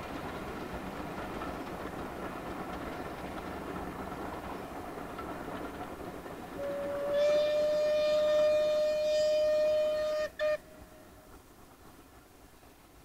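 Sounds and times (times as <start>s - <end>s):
train running: 0.0s - 13.0s
steam locomotive whistle: 6.6s - 11.1s.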